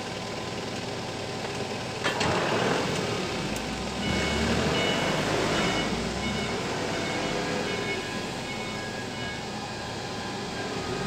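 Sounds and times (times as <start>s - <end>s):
diesel loader engine rumble: 0.0s - 11.0s
faint backup alarm beeps: 4.0s - 10.9s.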